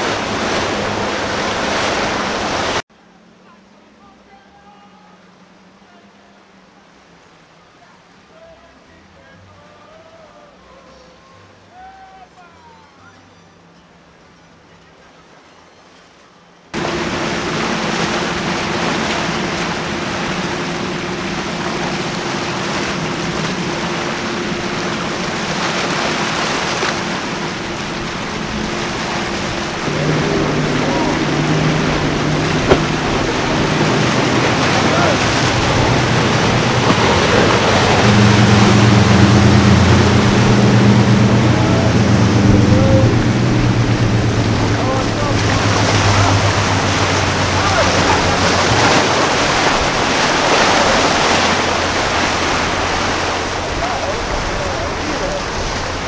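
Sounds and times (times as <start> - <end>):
wake and spray rushing: 0.0 - 2.9, 16.8 - 56.0
boat diesel engines droning: 0.0 - 56.0.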